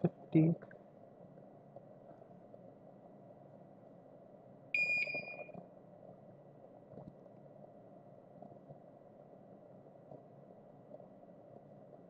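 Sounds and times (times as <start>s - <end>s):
faint background hum: 0.0s - 12.0s
electronic beep: 4.8s - 5.5s.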